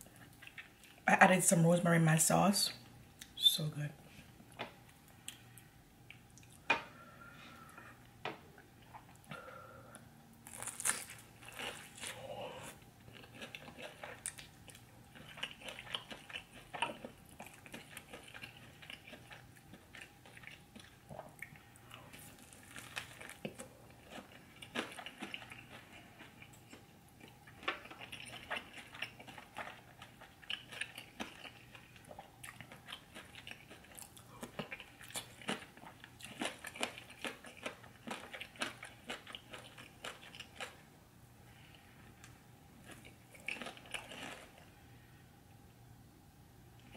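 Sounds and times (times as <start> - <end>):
person chewing and biting: 10.4 - 40.8, 42.8 - 44.7.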